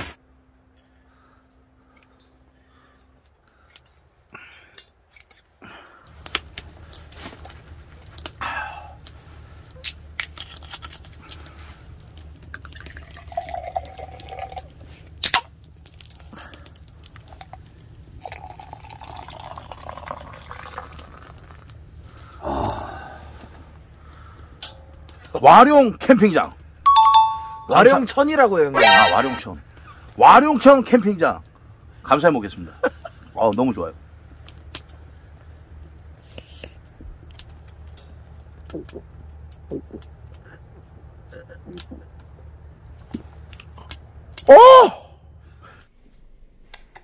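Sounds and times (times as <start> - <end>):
beer pouring and fizzing: 12.5 - 14.8, 17.4 - 21.7.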